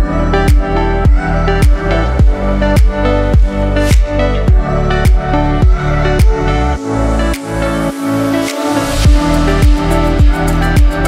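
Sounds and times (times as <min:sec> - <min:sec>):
kick drum beat: 0:00.0 - 0:06.4, 0:09.1 - 0:11.0
electronic music with bass and synth: 0:00.0 - 0:11.0.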